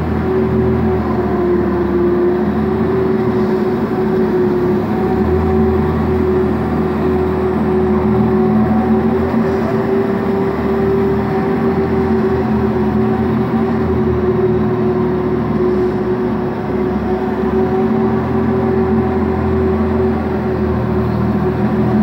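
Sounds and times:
ice resurfacer droning: 0.0s - 22.0s.

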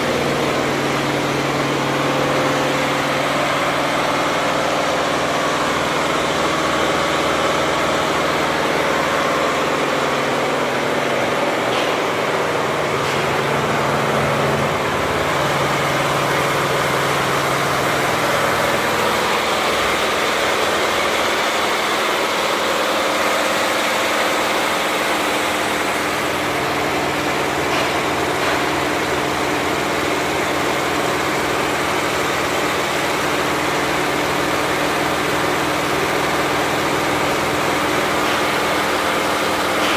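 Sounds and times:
embroidery machine running: 0.0s - 39.9s.

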